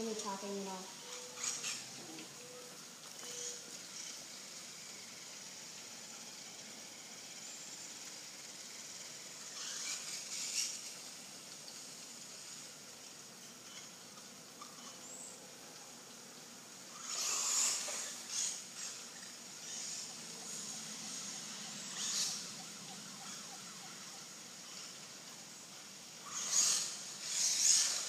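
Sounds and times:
background hiss: 0.0 - 28.0
rc truck tyres hissing through water: 0.0 - 28.0.

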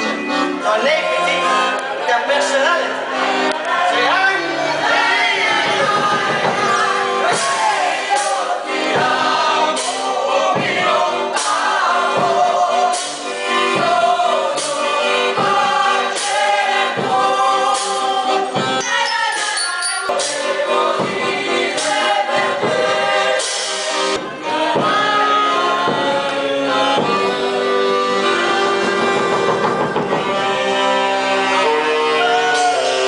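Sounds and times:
group singing in chorus: 2.8 - 33.0
drum beat: 5.6 - 12.6.

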